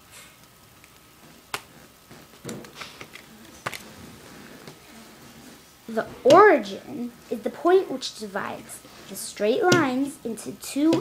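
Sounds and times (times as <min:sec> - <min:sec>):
soft rustle: 0:01.2 - 0:06.0.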